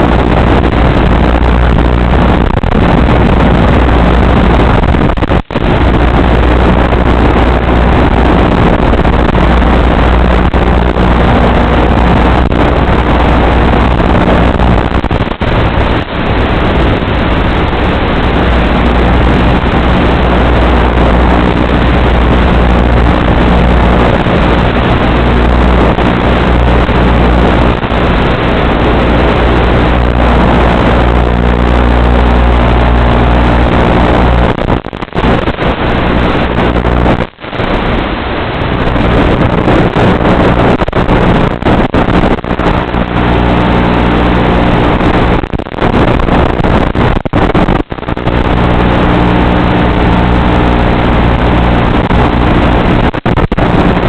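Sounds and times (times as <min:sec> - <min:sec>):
wind rushing: 0:00.0 - 0:54.0.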